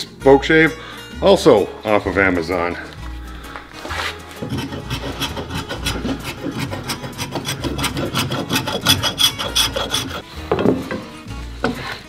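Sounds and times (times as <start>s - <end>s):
spokeshave scraping wood: 3.7s - 10.7s.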